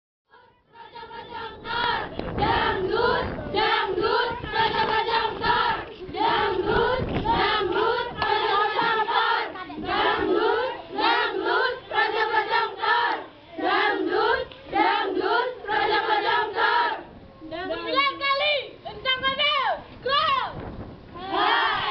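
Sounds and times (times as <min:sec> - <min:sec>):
girls singing in unison: 0:00.3 - 0:17.1, 0:21.2 - 0:21.9
low thumps: 0:01.6 - 0:09.1.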